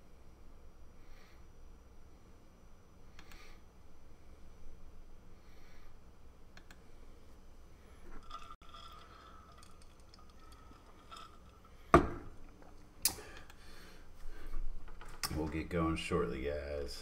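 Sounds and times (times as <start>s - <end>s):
person drinking: 8.0s - 14.0s
glass knocking on table: 12.0s - 12.3s.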